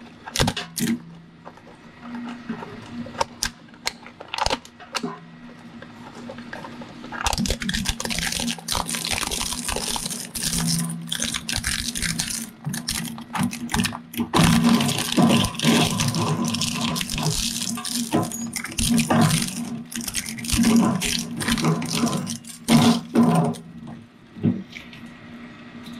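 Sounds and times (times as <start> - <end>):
shredder crunching binoculars: 7.2 - 23.7
shredder motor hum: 7.4 - 23.6.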